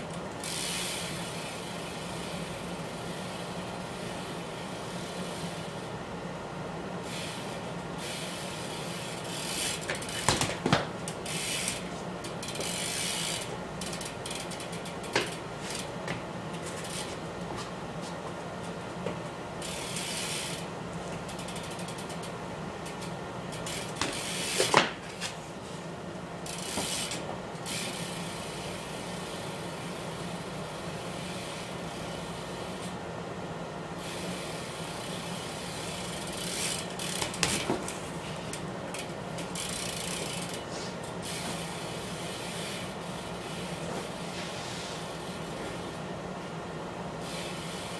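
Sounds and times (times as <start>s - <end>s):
bike freewheel ratcheting clicks: 0.0s - 3.6s, 7.0s - 17.2s, 19.6s - 25.4s, 26.4s - 33.0s, 34.0s - 43.8s, 47.2s - 47.9s
tyres landing on floor: 9.9s - 11.0s.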